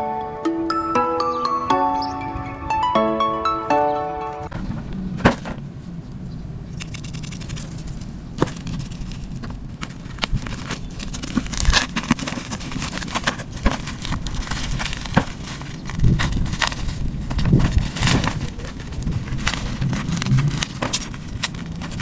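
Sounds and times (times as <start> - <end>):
plastic crinkling: 6.8 - 22.0.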